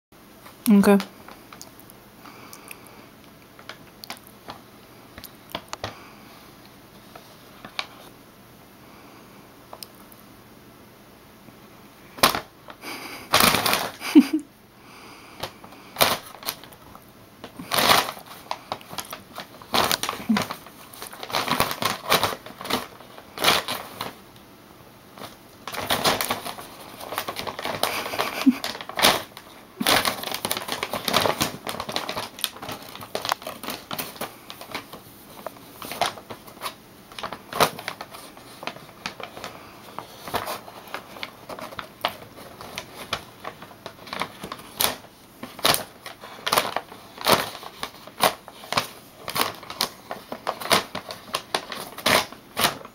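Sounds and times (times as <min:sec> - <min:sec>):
paper bag rustling and crackling: 0:07.1 - 0:08.1, 0:12.2 - 0:14.4, 0:15.4 - 0:24.3, 0:25.1 - 0:52.9.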